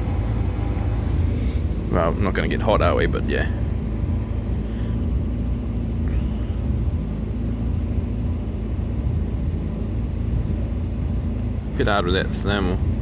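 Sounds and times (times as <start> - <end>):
heat pump humming: 0.0 - 13.0.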